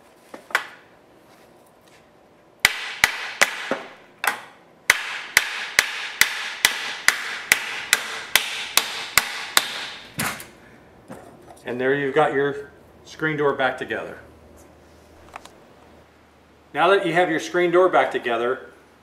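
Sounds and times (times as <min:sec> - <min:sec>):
hammer knocking on wooden block: 0:04.9 - 0:10.0.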